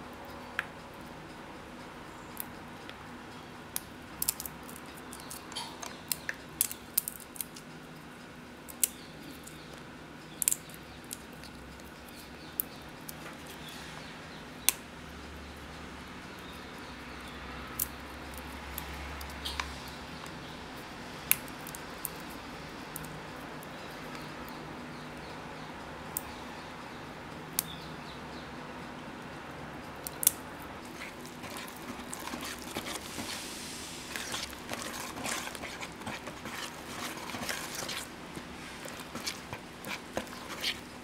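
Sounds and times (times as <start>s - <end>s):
steady low hiss: 0.0s - 41.0s.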